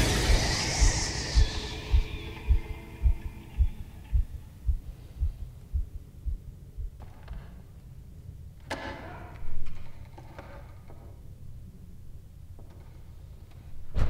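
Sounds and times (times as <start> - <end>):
film score music: 0.0 - 7.0
pulsing bass thumps: 0.0 - 7.0.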